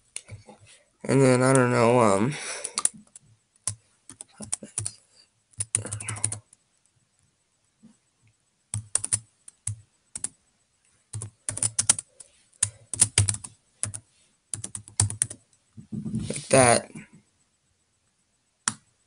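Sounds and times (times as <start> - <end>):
computer keyboard typing: 2.6 - 6.6, 8.7 - 10.4, 11.1 - 15.6, 18.6 - 18.9.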